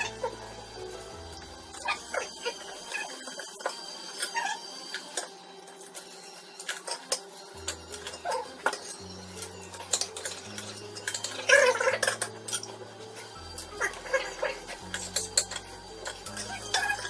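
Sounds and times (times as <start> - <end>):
cutlery clinking on plates and shells: 1.9 - 17.0
background music with bass line: 7.6 - 17.0.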